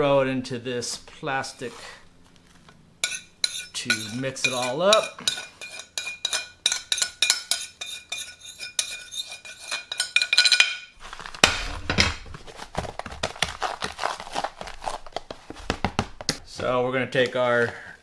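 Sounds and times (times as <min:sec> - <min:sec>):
spoon scraping ceramic plate: 0:03.0 - 0:10.7.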